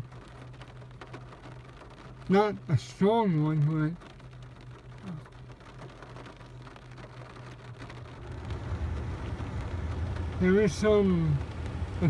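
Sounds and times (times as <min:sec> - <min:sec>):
rain falling: 0:00.0 - 0:12.0
low rumble: 0:04.0 - 0:12.0.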